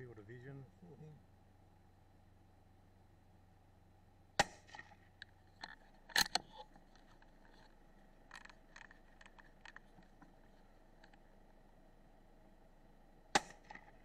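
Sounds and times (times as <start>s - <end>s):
rifle shot: 4.4s - 4.9s, 13.3s - 14.0s
sharp clicks: 4.4s - 7.3s.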